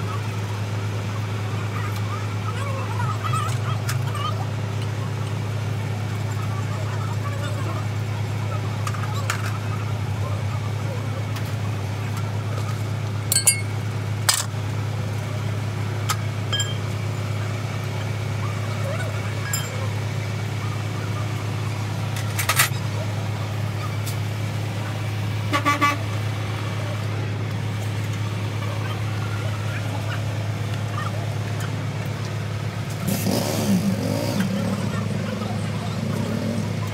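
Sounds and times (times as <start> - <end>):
low engine drone: 0.0 - 36.9
spanner clinking on metal: 13.3 - 14.5, 16.5 - 16.8, 19.4 - 19.8.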